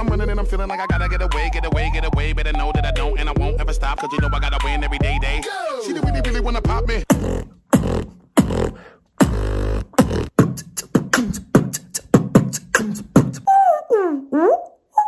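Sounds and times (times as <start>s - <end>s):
deep vocal bass notes: 0.0s - 13.4s
beatboxing track with deep bass: 0.0s - 13.6s
beatboxed kick and snare hits: 6.0s - 13.5s.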